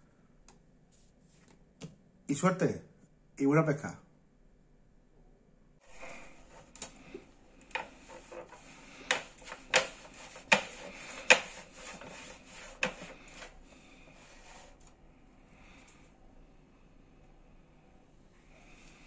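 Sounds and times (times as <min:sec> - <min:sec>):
rolling table rubbing slide: 0:05.8 - 0:15.0
sharp irregular knocks: 0:07.7 - 0:11.9.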